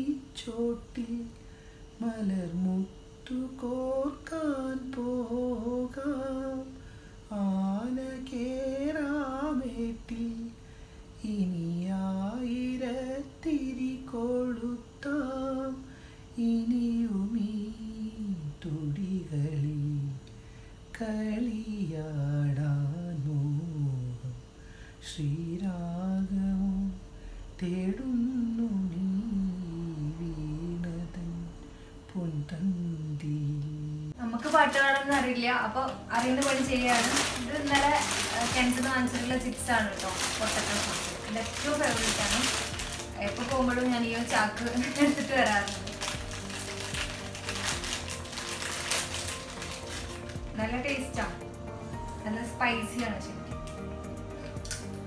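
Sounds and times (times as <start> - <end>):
man singing wordless melody: 0.0 - 1.4, 2.0 - 10.6, 11.2 - 20.2, 20.9 - 27.0, 27.6 - 34.2.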